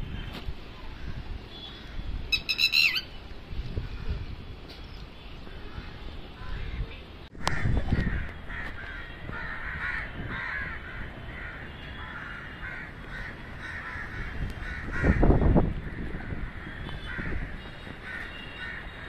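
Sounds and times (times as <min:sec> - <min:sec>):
crows cawing: 0:07.5 - 0:19.0.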